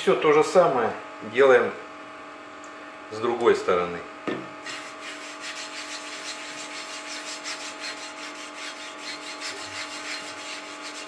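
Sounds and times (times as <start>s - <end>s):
steady low hum: 0.0s - 11.0s
paper napkin rubbing cast iron: 4.6s - 11.0s.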